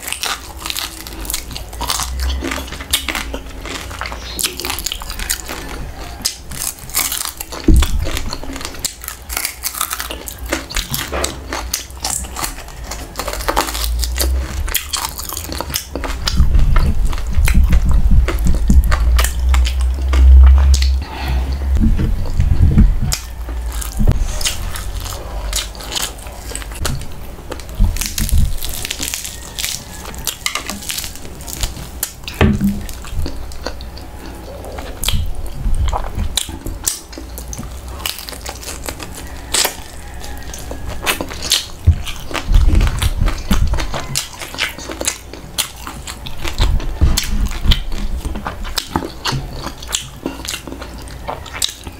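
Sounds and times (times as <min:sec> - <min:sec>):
crunching and chewing food: 0:00.0 - 0:51.9
heavy low thumps: 0:16.2 - 0:25.5.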